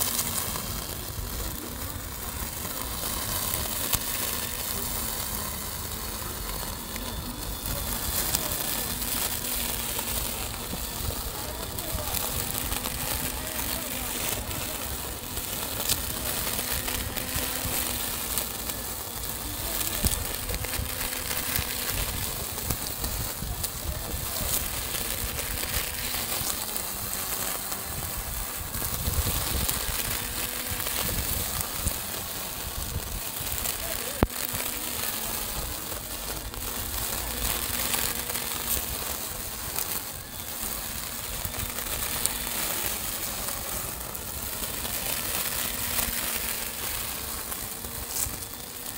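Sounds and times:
grass trimmer motor humming: 0.0 - 48.9
trimmer cutting grass: 0.0 - 48.9
trimmer striking stems: 0.0 - 48.9.

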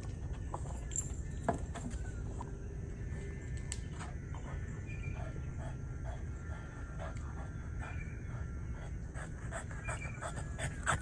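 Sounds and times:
dog panting: 4.4 - 11.0.

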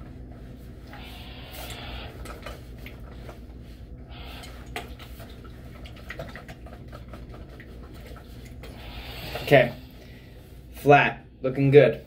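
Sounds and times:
steam iron hissing: 1.0 - 2.1.

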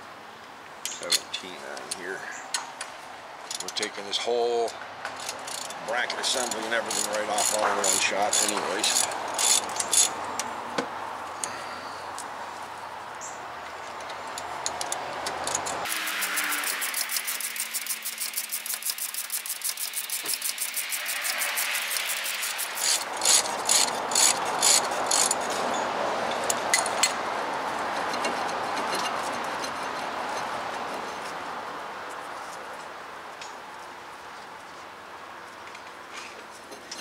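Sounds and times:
ratchet wrench clicking: 5.2 - 10.2, 14.4 - 25.4.

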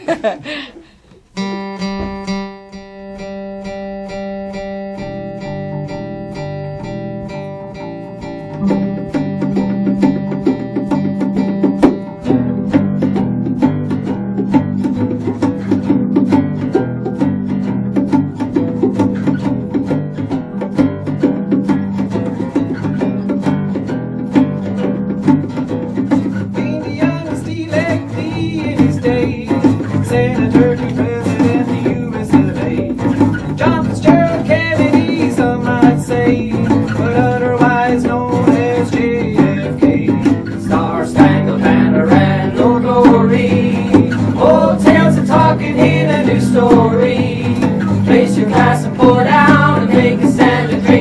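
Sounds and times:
acoustic guitar strumming: 1.1 - 51.0
bass notes: 1.2 - 51.0
live band playing: 1.2 - 51.0
person singing: 26.4 - 51.0.

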